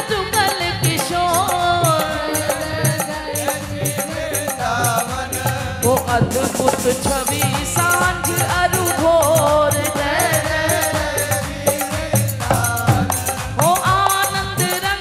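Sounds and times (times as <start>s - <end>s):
woman singing a chant: 0.0s - 3.8s, 5.8s - 11.4s, 13.6s - 15.0s
jingling percussion: 0.0s - 15.0s.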